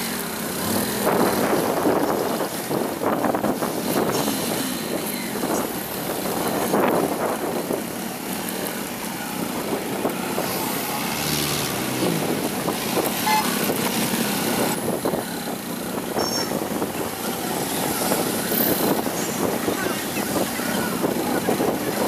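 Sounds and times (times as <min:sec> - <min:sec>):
scooter and car engines: 0:00.0 - 0:22.0
short horn toot: 0:13.2 - 0:13.7.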